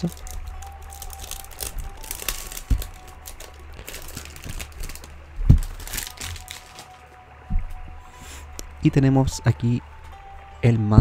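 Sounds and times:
plastic bag crinkling: 0.0s - 7.1s
low thump: 7.5s - 7.9s.

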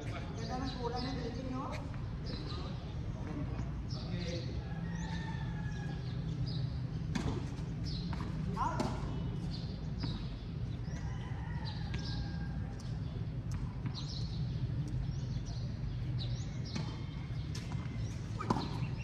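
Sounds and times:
tennis ball bounces: 6.9s - 11.1s, 11.8s - 19.0s.

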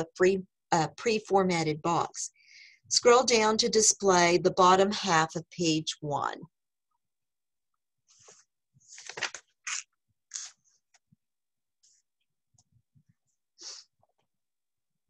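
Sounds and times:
rustling and scraping handling noises: 8.1s - 11.1s.

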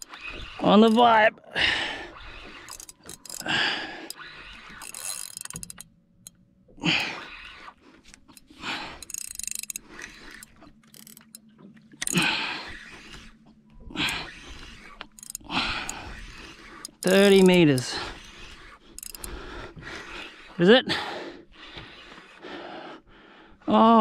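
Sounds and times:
fishing reel winding: 0.0s - 1.2s, 2.1s - 13.3s, 14.0s - 20.5s
person breathing hard: 3.2s - 4.2s, 8.4s - 10.4s, 15.4s - 16.5s, 17.9s - 23.7s.

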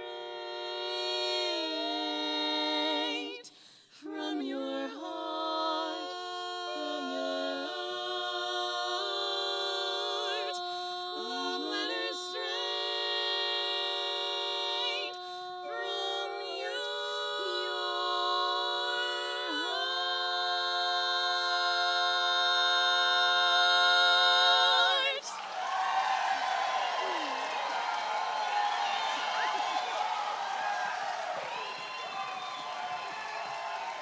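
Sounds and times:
women singing a cappella harmony: 0.0s - 25.4s.

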